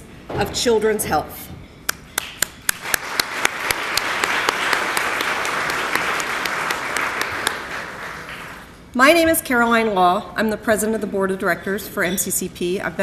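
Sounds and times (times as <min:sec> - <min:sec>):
audience applauding: 0:02.2 - 0:08.7.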